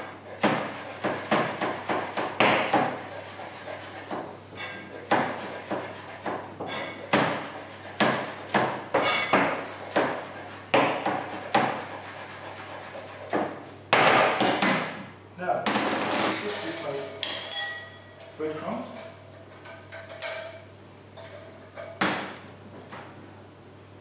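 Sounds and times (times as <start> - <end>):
knife scraping board: 0.0 - 13.6
knife chopping on board: 0.4 - 4.3, 4.9 - 12.0, 12.6 - 15.0.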